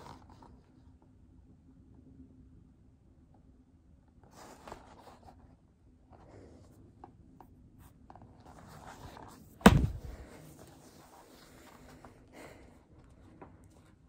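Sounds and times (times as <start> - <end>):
book thumping down: 9.6 - 10.4.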